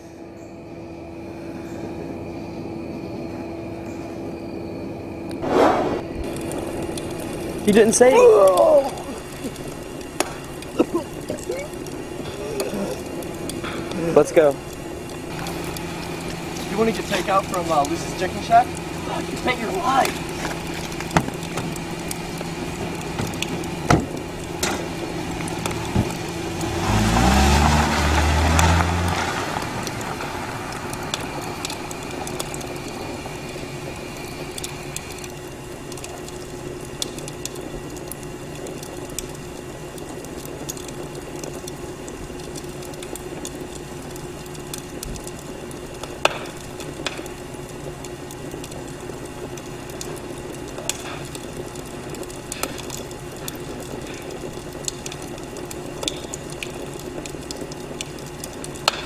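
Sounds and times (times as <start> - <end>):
steady low hum: 0.0 - 59.0
tyres over dry leaves: 6.0 - 35.5
car engine revving: 15.3 - 33.1
car doors shutting: 22.8 - 24.9, 25.5 - 27.8.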